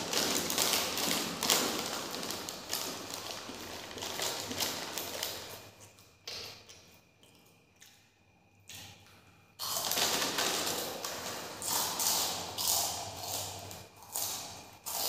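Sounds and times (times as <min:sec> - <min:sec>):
foil snack packet crinkling: 0:00.0 - 0:05.6, 0:09.6 - 0:12.7
crunching of snacks being eaten: 0:00.0 - 0:15.0.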